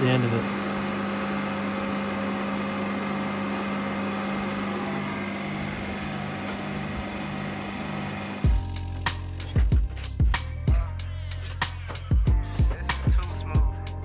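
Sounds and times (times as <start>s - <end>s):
refrigerant recovery machine humming: 0.0s - 8.9s.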